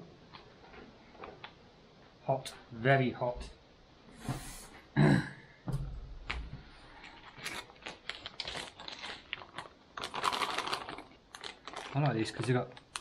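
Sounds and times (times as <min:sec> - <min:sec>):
plastic pouch crinkling: 0:06.8 - 0:13.0.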